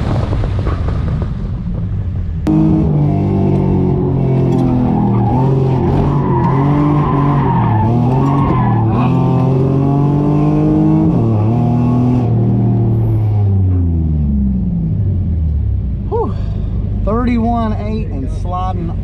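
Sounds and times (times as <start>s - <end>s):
tires squealing: 2.5s - 11.8s
car engine revving hard: 2.5s - 14.8s.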